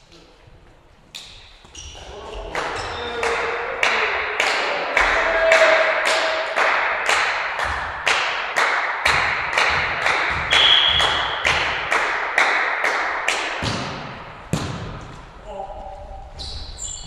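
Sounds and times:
rhythmic hand clapping: 2.5s - 14.1s
short whistle blast: 10.5s - 11.3s
volleyball struck with a smack: 13.6s - 15.0s.

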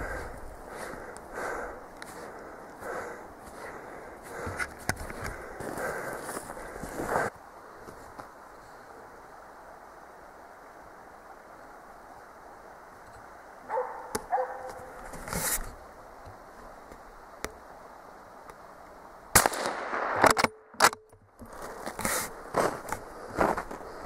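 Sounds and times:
dog barking: 13.7s - 14.9s
rifle shot with rolling echo: 19.3s - 20.7s.

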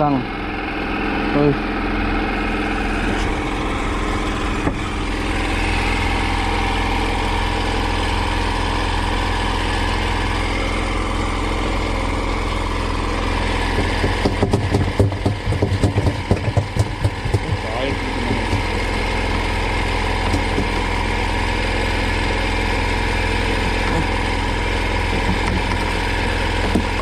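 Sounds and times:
boat engine idling: 0.0s - 27.0s.

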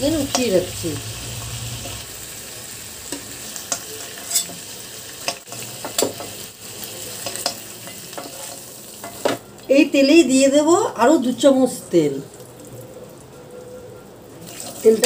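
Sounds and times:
chicken sizzling in hot oil: 0.0s - 9.7s, 14.3s - 15.0s
spatula scraping against pan: 3.1s - 6.4s.

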